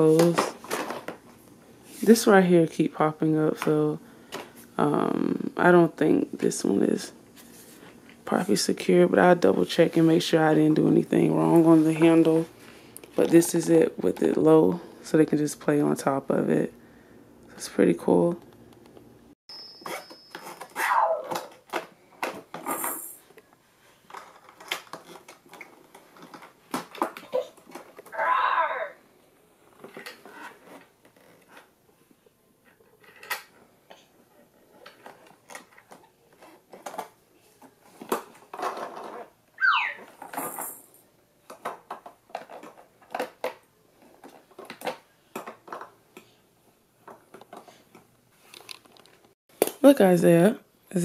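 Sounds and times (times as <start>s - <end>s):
short falling electronic tone: 39.6s - 40.1s.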